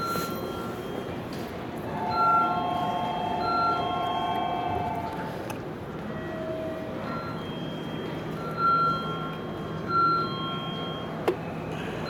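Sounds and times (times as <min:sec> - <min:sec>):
station hum: 0:00.0 - 0:12.0.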